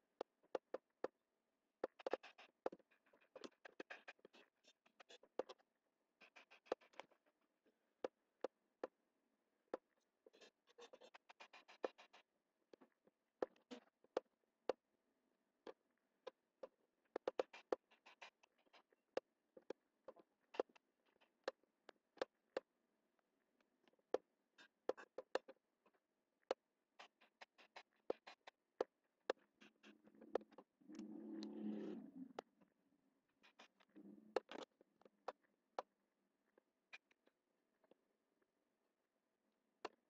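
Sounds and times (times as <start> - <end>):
mouse scraping across desk: 29.7 - 32.5.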